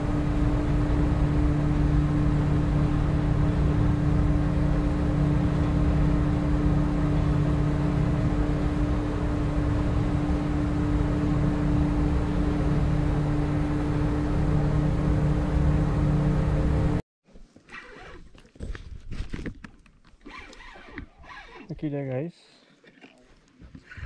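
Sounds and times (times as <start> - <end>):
outboard motor droning: 0.0 - 17.0.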